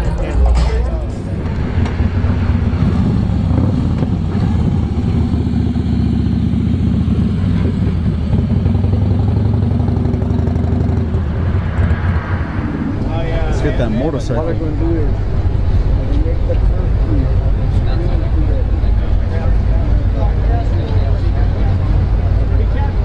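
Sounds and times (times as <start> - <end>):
motorcycle engine passing: 0.4 - 15.6.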